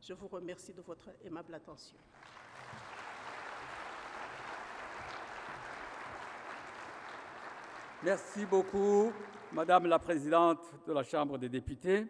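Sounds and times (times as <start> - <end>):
audience applauding: 2.1 - 10.2.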